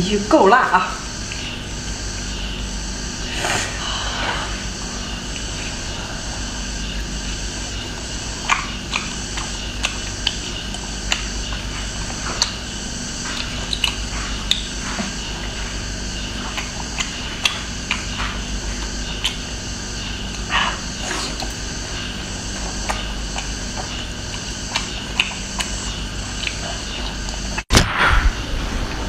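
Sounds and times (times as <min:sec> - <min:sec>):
background hum: 0:00.0 - 0:29.0
noisy slurp: 0:03.1 - 0:27.6
wet chewing smacks: 0:05.2 - 0:27.6.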